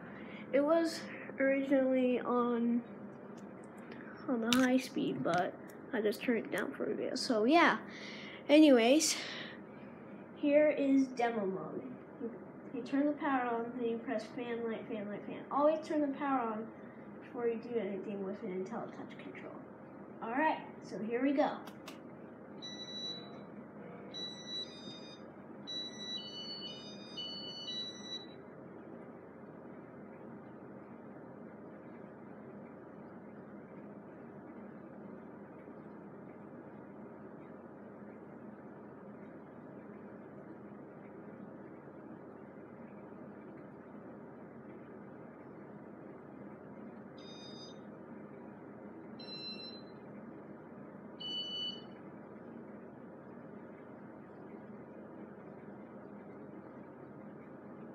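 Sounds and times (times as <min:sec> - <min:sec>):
hum of moving air: 0:00.0 - 0:26.1
electronic beep tones: 0:22.6 - 0:28.4, 0:47.2 - 0:47.8, 0:49.2 - 0:50.0, 0:51.2 - 0:51.9.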